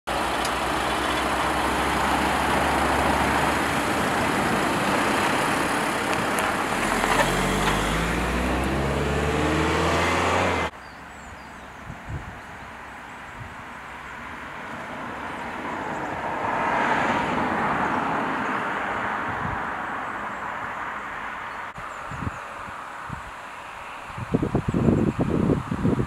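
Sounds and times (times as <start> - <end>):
vehicle engine accelerating: 0.1 - 10.8.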